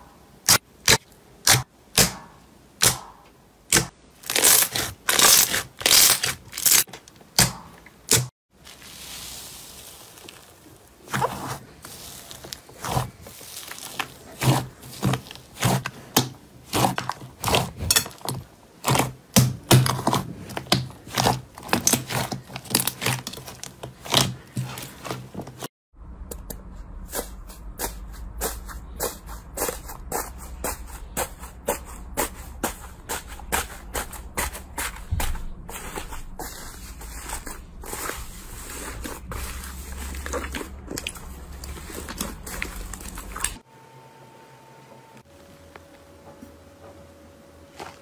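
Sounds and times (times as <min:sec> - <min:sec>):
hands squeezing slime: 0:08.6 - 0:16.0.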